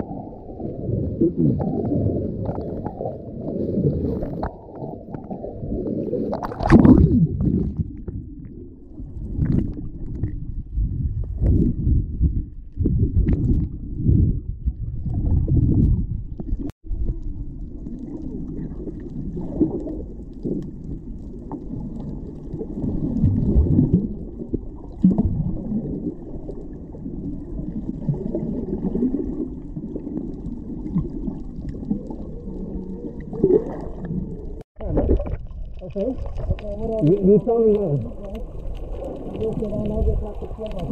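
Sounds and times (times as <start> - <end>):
underwater rumble of moving water: 0.0 - 40.9.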